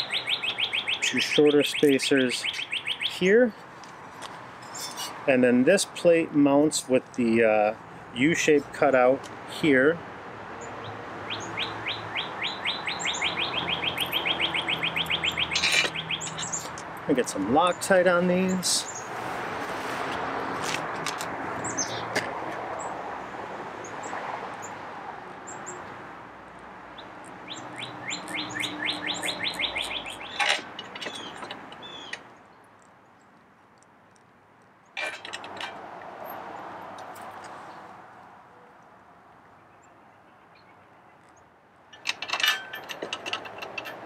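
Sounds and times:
birds chirping: 0.0s - 3.8s, 10.6s - 19.2s, 21.6s - 22.1s, 25.4s - 26.0s, 26.8s - 33.4s.

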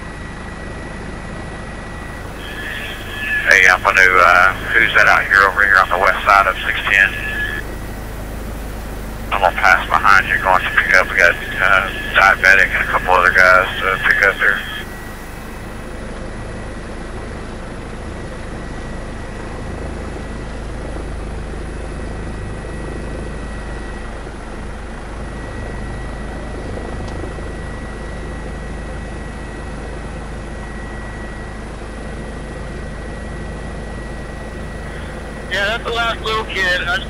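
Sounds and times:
helicopter rotor and turbine: 0.0s - 37.0s
high constant whine: 0.0s - 37.0s.

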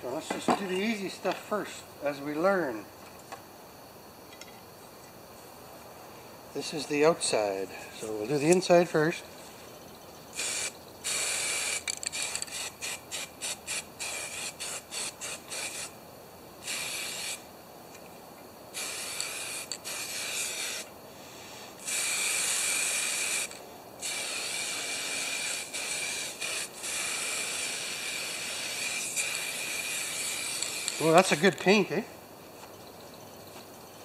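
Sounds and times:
spray can hissing: 10.4s - 16.0s, 16.6s - 17.5s, 18.7s - 20.9s, 21.8s - 31.9s.

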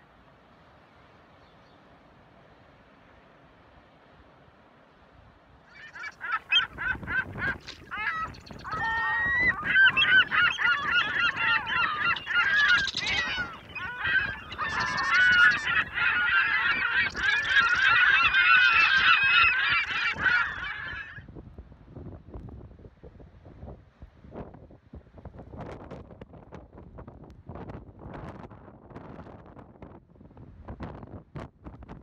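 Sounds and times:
flock of birds calling: 5.7s - 21.2s.

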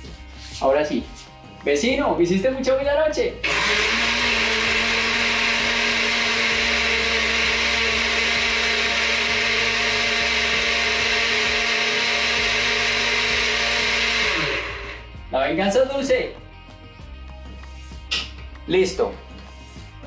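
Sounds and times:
blender motor running: 3.4s - 15.2s.

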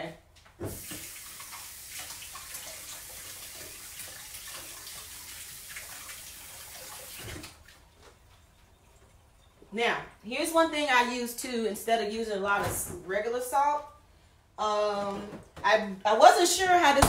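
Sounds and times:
faucet running water: 0.6s - 7.9s.

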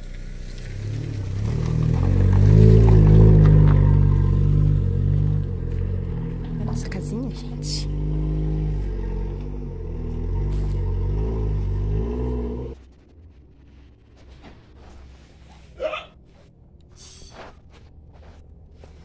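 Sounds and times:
car engine running: 0.0s - 16.9s
short squeak: 17.0s - 17.6s.

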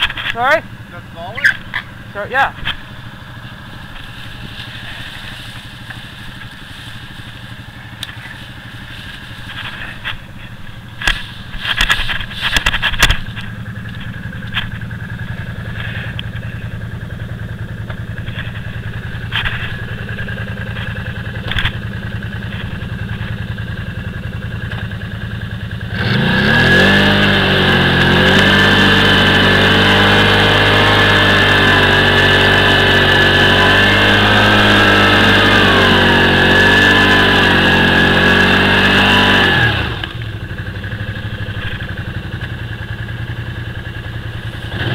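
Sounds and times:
sharp knocks and clatter: 0.0s - 0.4s, 9.4s - 16.6s, 17.8s - 23.9s
atv engine idling and revving: 0.0s - 44.9s.

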